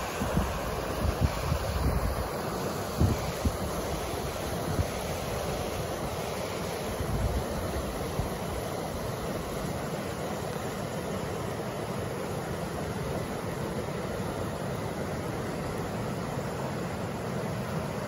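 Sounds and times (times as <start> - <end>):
wind buffeting microphone: 0.0 - 2.2
river rushing over rapids: 0.0 - 18.0.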